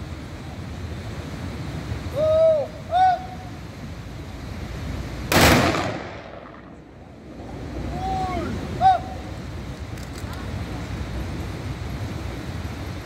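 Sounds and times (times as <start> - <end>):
salute gunshot with echo: 5.3 - 6.7
person shouting a call: 7.9 - 9.3.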